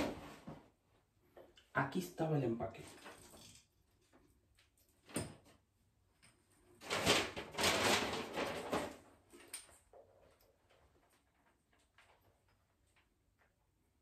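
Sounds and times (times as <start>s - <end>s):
rustling or scraping: 6.4s - 13.5s.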